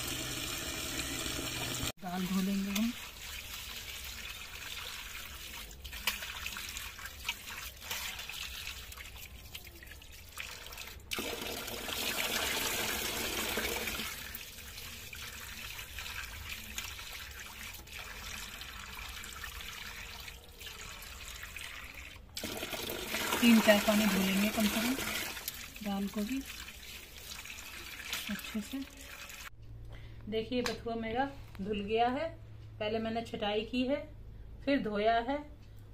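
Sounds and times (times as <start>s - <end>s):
water poured into bucket: 2.6s - 29.5s.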